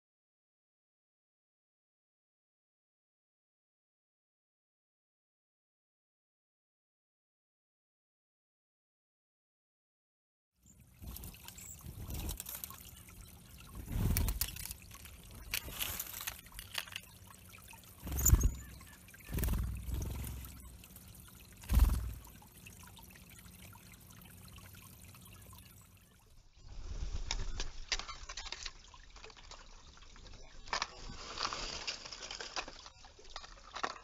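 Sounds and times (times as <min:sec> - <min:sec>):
water trickling into pond: 0:10.6 - 0:34.0
high thin bird calls: 0:10.7 - 0:20.8
birds splashing in water: 0:10.7 - 0:26.3.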